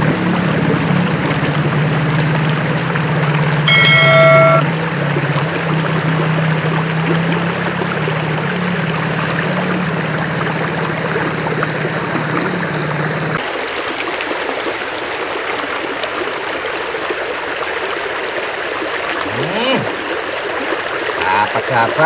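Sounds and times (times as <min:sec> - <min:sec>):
low droning tone: 0:03.7 - 0:04.8.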